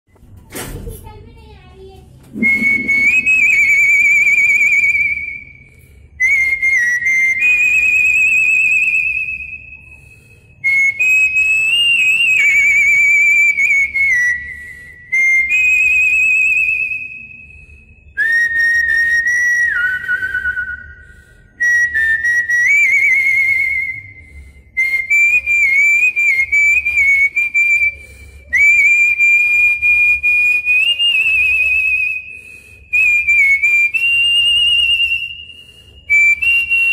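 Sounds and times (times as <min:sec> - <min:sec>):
man whistling into microphone: 0:02.3 - 0:10.0, 0:21.6 - 0:24.2, 0:32.9 - 0:36.9.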